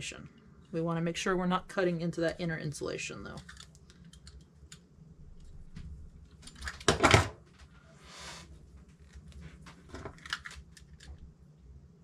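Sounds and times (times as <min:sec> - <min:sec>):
scrape: 0:07.8 - 0:08.6.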